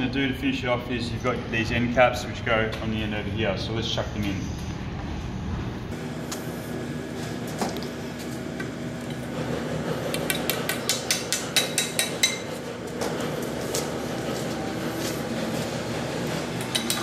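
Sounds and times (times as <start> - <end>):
hammer tapping on metal tube: 10.2 - 12.4.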